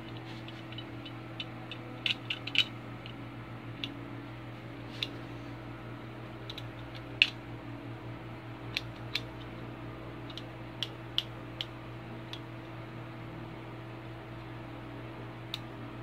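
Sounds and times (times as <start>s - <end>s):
steady low hum: 0.0s - 16.0s
multi-tool pliers metal clicks: 10.3s - 11.7s.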